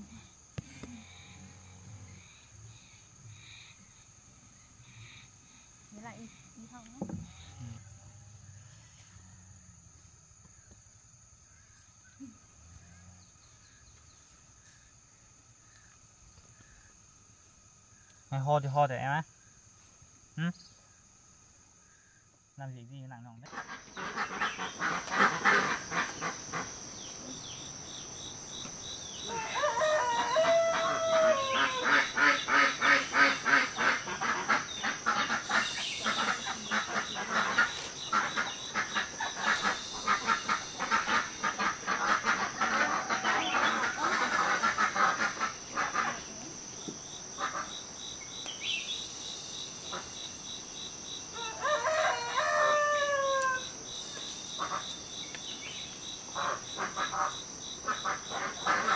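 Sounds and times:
high insect buzz: 0.0s - 22.8s, 23.5s - 58.9s
chickens clucking: 23.5s - 26.8s, 28.6s - 46.4s, 56.4s - 58.9s
rooster crowing: 29.2s - 32.2s, 51.3s - 53.8s.

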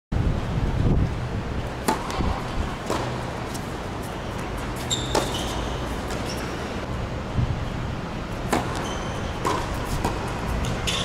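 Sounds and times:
tennis ball struck and bouncing: 1.8s - 6.7s, 8.4s - 11.0s
sneakers squeaking on court: 1.8s - 6.9s, 8.4s - 11.0s.

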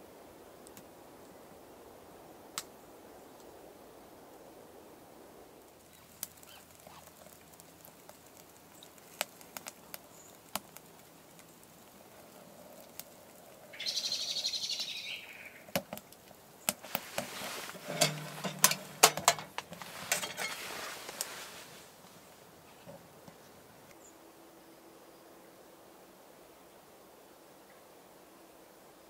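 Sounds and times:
logs crackling in wood stove: 0.6s - 1.0s, 2.5s - 2.8s, 5.5s - 24.0s
stove door clanking shut: 17.7s - 20.6s
brief hiss: 19.8s - 22.0s.

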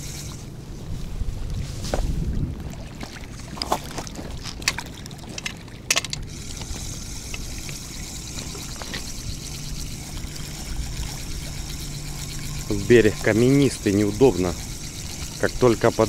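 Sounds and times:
spinning reel whirring: 0.0s - 0.5s, 5.4s - 16.0s
fishing rod clicks and knocks: 3.6s - 7.8s.

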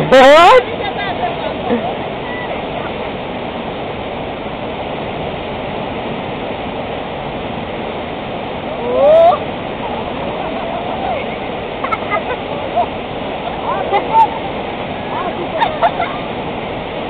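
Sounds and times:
river rapids rushing: 0.0s - 17.0s
person shouting: 8.8s - 9.4s.

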